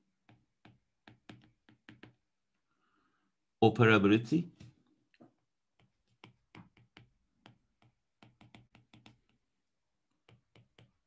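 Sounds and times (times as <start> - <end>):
stylus tapping on tablet screen: 0.0 - 2.5, 5.2 - 11.0.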